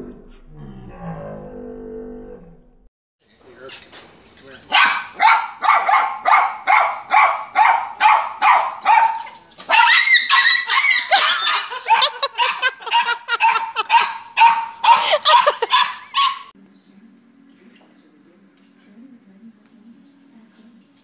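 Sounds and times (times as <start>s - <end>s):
small dog barking: 4.7s - 16.5s.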